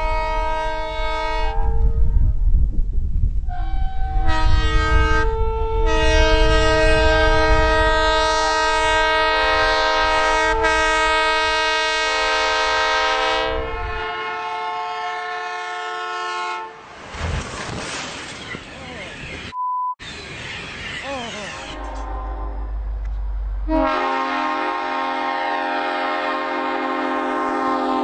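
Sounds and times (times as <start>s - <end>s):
locomotive air horn chord: 0.0s - 1.8s, 3.5s - 16.8s, 21.7s - 28.0s
train rumbling through snow: 0.0s - 14.9s, 16.6s - 19.3s.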